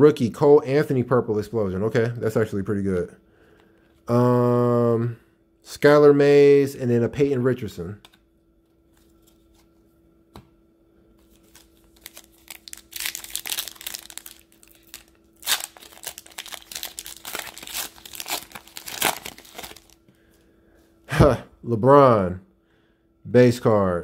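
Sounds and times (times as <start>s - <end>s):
plastic foil pack crinkling: 11.2s - 20.0s
foil pack tearing: 11.4s - 20.0s.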